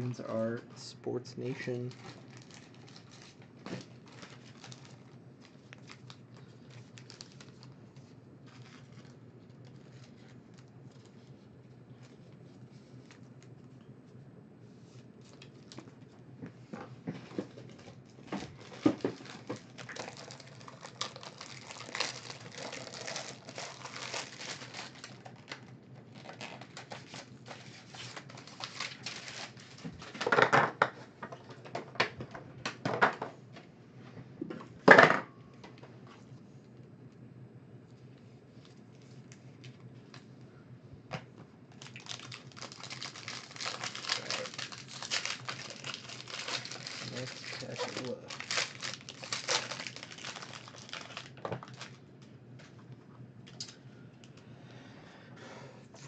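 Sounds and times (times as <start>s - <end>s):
packaging crinkling: 1.7s - 13.4s, 14.9s - 16.0s, 17.2s - 31.0s, 41.7s - 52.0s.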